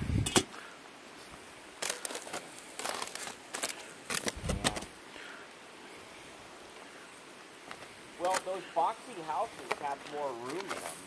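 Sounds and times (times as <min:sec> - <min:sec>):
rustling and clattering handling: 0:01.8 - 0:05.0, 0:07.6 - 0:11.0.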